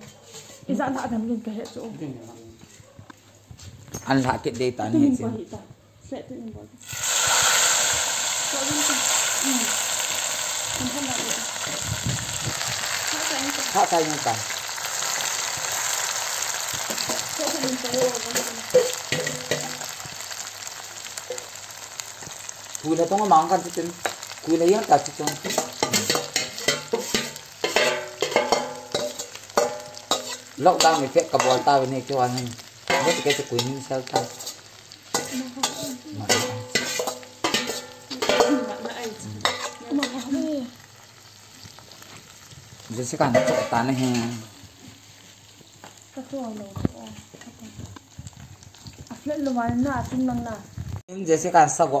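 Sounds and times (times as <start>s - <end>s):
fish sizzling in hot oil: 6.8s - 52.0s
lid and utensil clinking on pan: 17.0s - 19.8s, 25.3s - 31.8s, 32.9s - 34.6s, 35.2s - 40.3s, 43.3s - 44.4s.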